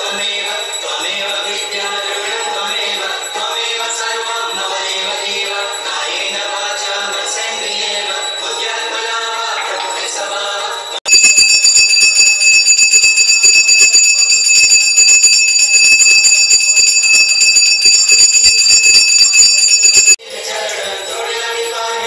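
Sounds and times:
small hand bell ringing rapidly: 11.1s - 20.2s.

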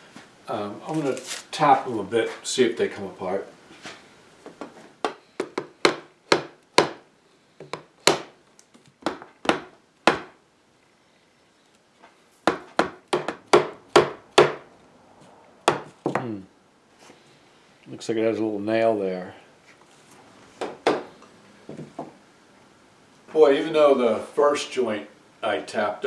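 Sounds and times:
hammer knocking on wooden chair: 12.5s - 14.6s, 20.6s - 21.1s.

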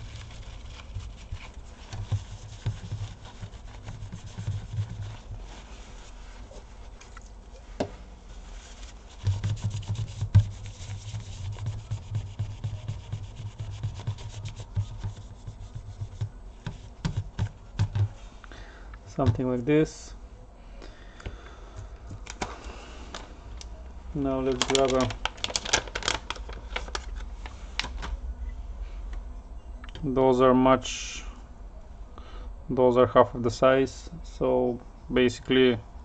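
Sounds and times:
paper towel scrubbing: 0.0s - 18.4s.

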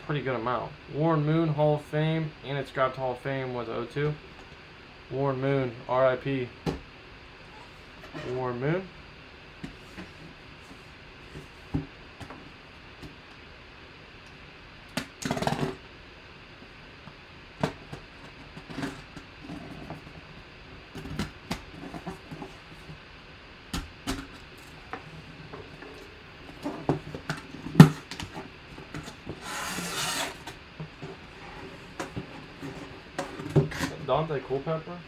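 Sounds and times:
box scraping on table: 28.9s - 34.0s
blade slicing packing tape: 29.4s - 30.5s.

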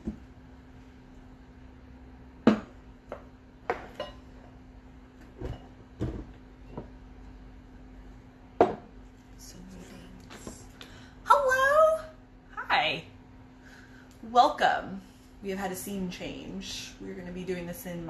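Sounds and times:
faint steady hum: 0.0s - 18.0s
kitchen items knocking on wooden table: 2.4s - 4.0s, 5.3s - 7.0s, 8.6s - 8.9s.

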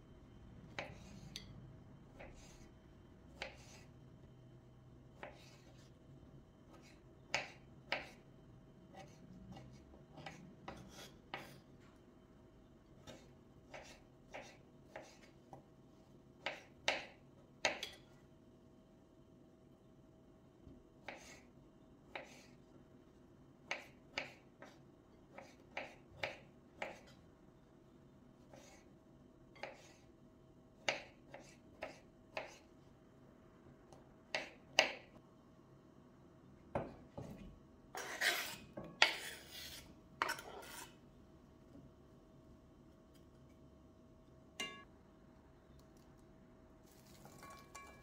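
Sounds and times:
knife scraping cutting board: 0.8s - 1.4s, 2.1s - 2.7s, 3.4s - 3.9s, 5.2s - 6.0s, 8.9s - 11.7s, 13.0s - 15.4s, 22.1s - 22.6s, 28.5s - 28.9s, 29.6s - 30.1s, 30.9s - 32.7s, 37.2s - 41.0s.

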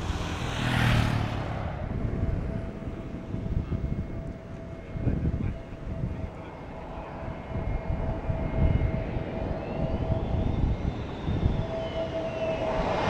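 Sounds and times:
jet engines rumbling and whining: 0.0s - 13.0s
high whistling tones: 6.6s - 13.0s.

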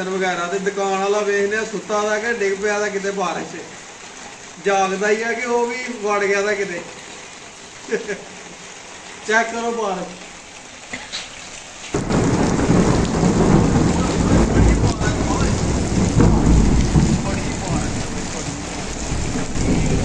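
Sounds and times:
heavy rain on concrete: 0.0s - 20.0s.

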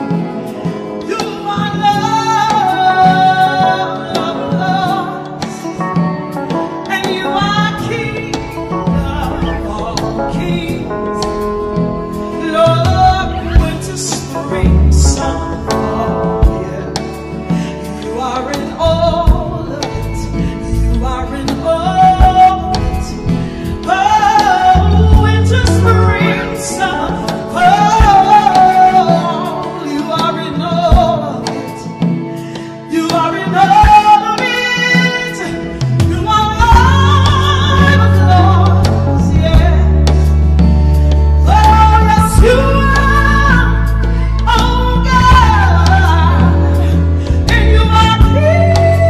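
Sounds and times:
gospel band backing: 0.0s - 49.0s
solo singer with sliding notes: 0.0s - 49.0s
heavy bass: 7.2s - 17.8s, 18.5s - 29.0s.

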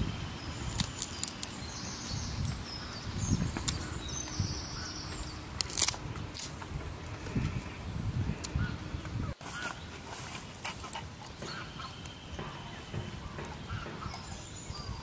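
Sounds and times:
bird chirps: 0.4s - 5.5s, 11.2s - 15.0s
bananas being peeled: 0.6s - 1.7s, 5.5s - 8.6s.

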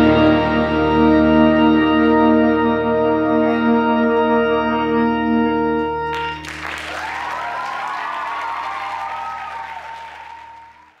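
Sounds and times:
audience applause: 6.1s - 11.0s
person cheering: 6.4s - 11.0s.

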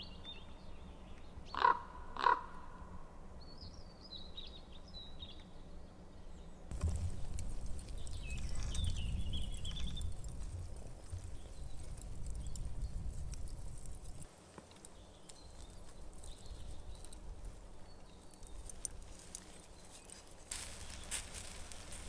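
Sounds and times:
low rumble: 6.7s - 14.3s
embers crackling and ticking: 6.7s - 22.0s.

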